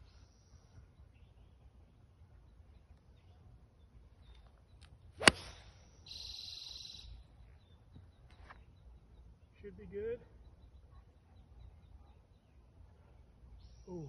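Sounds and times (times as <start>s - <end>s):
golf club striking ball: 5.2s - 5.7s.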